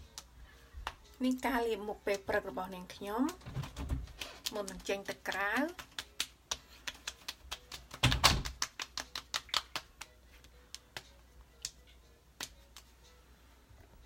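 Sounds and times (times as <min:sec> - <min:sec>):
hands patting face: 0:04.0 - 0:11.8, 0:12.4 - 0:13.0.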